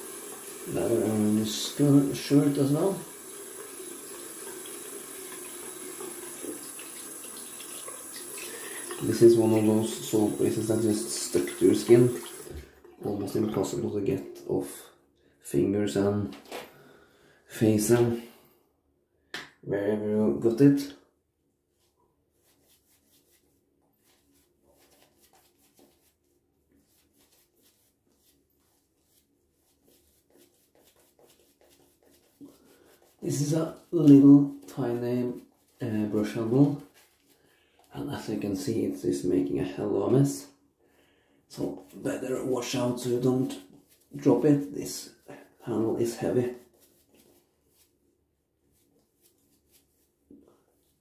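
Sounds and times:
hands rinsing under water: 0.0 - 13.8
tap water running into sink: 0.0 - 13.8
shaving brush swishing: 21.8 - 38.4, 41.5 - 51.0.

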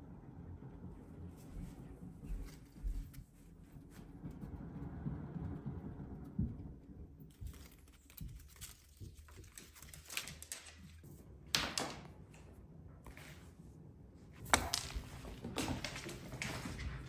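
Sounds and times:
cat exercise wheel rumbling: 3.6 - 9.8, 14.7 - 17.0.

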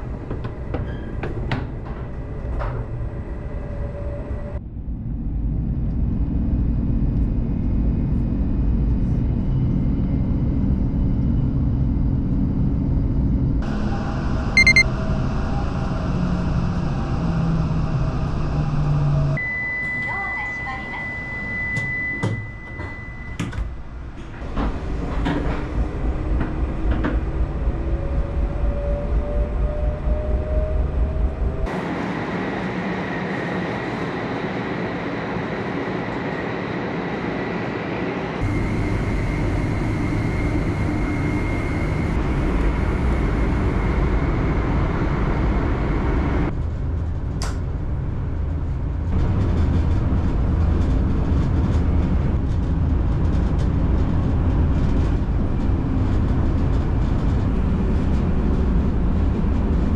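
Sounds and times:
train rumble at speed: 0.0 - 59.9
high warning tone: 14.6 - 14.9
train motor whine rising: 38.4 - 46.5.

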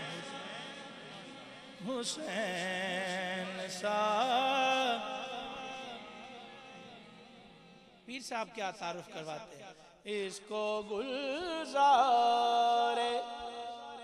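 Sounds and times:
man singing unaccompanied: 0.0 - 7.2, 10.1 - 14.0.

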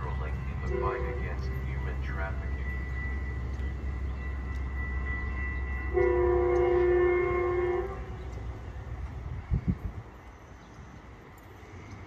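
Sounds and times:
steady low rumble: 0.0 - 12.0
train horn chord: 0.5 - 3.4, 4.8 - 8.3.

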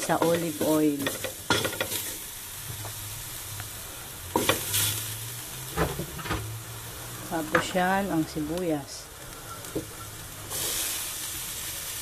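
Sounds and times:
utensil striking pan: 0.0 - 2.2, 4.3 - 4.9
garlic sizzling in oil: 0.0 - 12.0.

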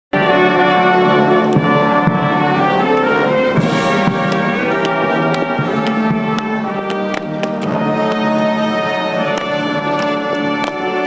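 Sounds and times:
brass band playing solemn piece: 0.2 - 11.0.

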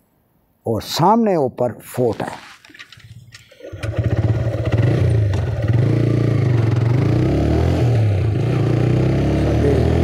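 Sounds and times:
motorcycle engine revving: 3.5 - 10.0.

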